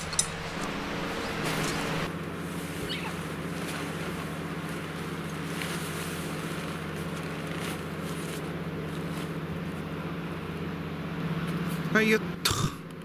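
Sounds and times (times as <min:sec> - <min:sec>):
steady low hum: 0:00.0 - 0:13.0
nylon fabric rustling: 0:00.3 - 0:09.8.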